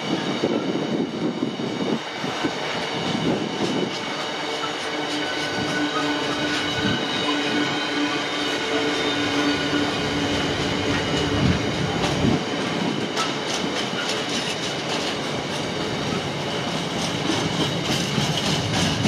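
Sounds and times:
freight train rumble: 0.0s - 19.0s
wheels clattering over rail joints: 4.6s - 19.0s.

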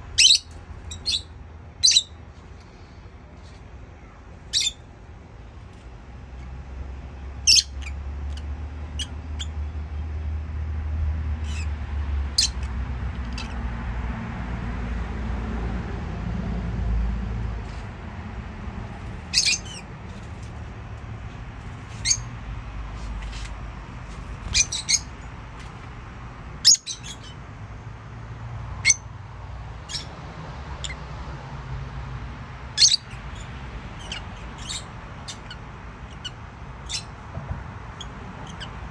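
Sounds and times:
birds chirping: 0.0s - 2.2s, 4.0s - 4.9s, 7.1s - 9.8s, 11.4s - 13.6s, 18.8s - 22.4s, 23.0s - 25.9s, 26.5s - 27.5s, 28.6s - 31.1s, 32.7s - 38.9s.

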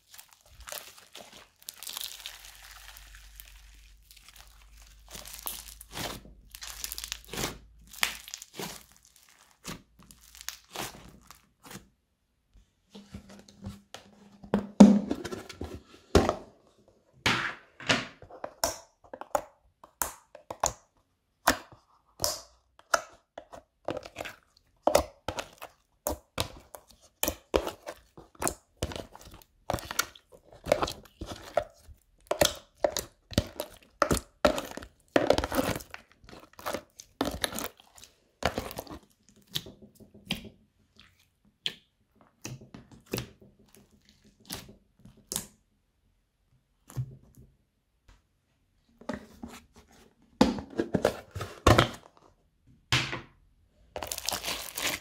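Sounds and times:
fingers squishing slime: 0.0s - 11.8s, 19.4s - 45.6s.

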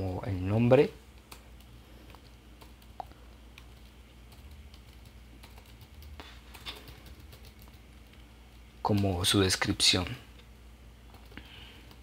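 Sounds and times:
keyboard typing: 1.2s - 9.3s, 11.0s - 12.0s.

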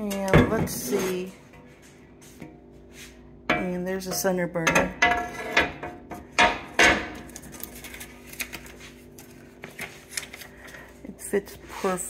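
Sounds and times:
griddle scraping and clicking: 0.0s - 10.4s.

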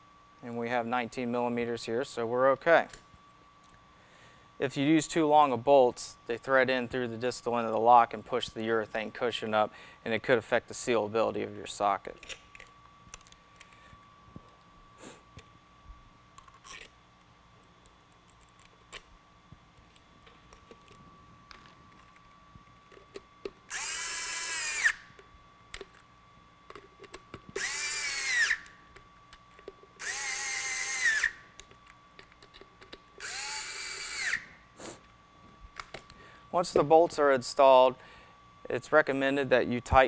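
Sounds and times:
electric screwdriver whining: 23.7s - 25.1s, 27.5s - 28.7s, 30.0s - 31.4s, 33.2s - 34.5s.

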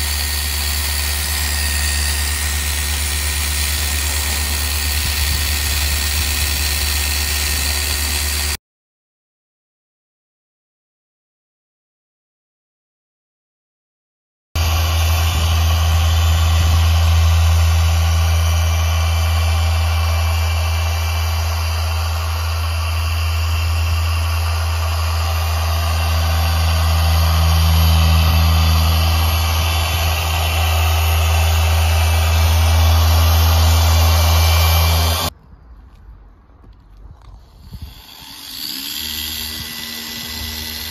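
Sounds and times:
polisher humming: 0.0s - 8.6s, 14.6s - 35.3s, 37.6s - 40.9s.

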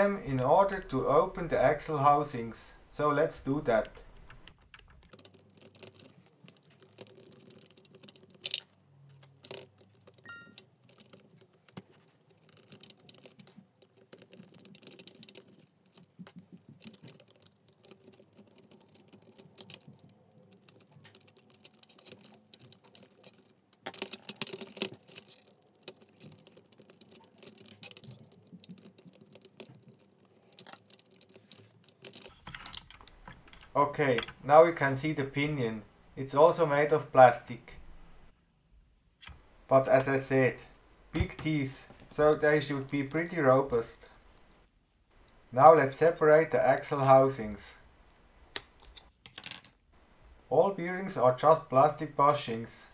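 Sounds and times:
screws and plastic parts clicking: 3.7s - 34.4s, 41.2s - 43.6s, 48.4s - 49.8s.

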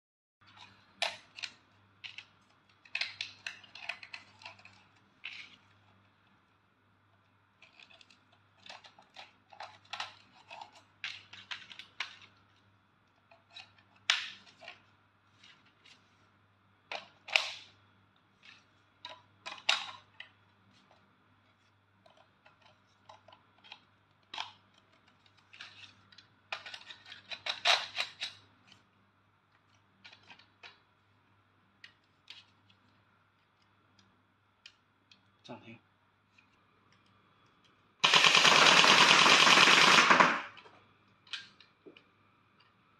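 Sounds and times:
plastic toy parts clicking and knocking: 0.4s - 5.7s, 7.6s - 12.5s, 19.0s - 20.4s, 22.0s - 28.4s.

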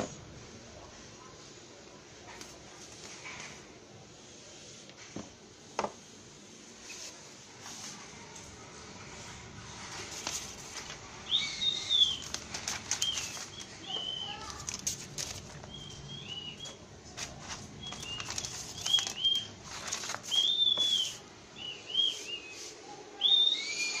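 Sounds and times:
packaging rustling and crinkling: 9.7s - 21.2s.

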